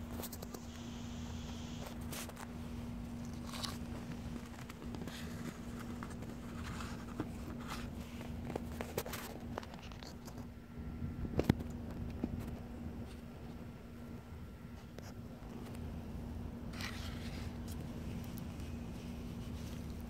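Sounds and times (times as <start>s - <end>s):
paper plate handling clicks and rustles: 1.8s - 10.5s, 16.7s - 20.0s.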